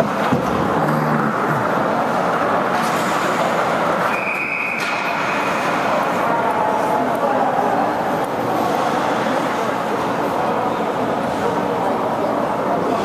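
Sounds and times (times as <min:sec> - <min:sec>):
ice rink crowd noise: 0:00.0 - 0:13.0.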